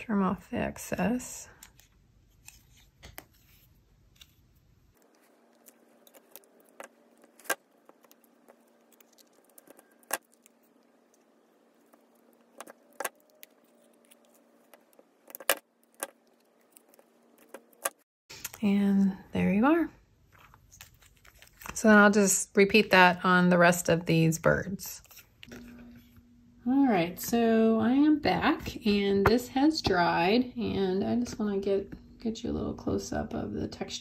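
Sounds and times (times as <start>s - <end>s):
paper handling: 1.6s - 4.4s, 20.3s - 21.8s.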